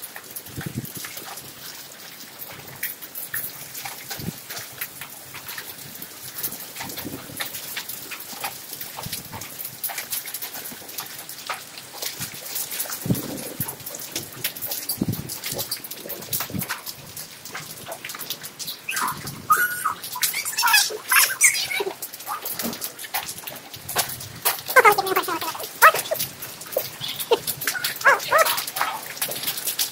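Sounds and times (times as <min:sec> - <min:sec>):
heavy rain hissing: 0:18.2 - 0:29.9.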